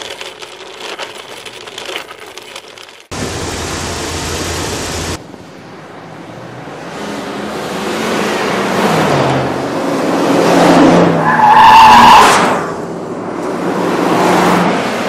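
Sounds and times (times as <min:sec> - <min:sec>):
cars driving fast past: 0:03.2 - 0:11.2, 0:12.0 - 0:15.0.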